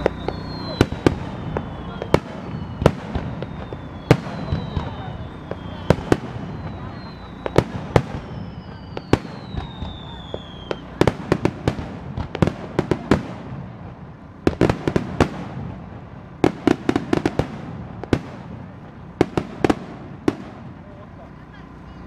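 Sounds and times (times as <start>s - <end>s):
falling firework whistle: 0.0s - 13.4s
fireworks bursting: 0.0s - 22.0s
steady rumble: 0.0s - 22.0s.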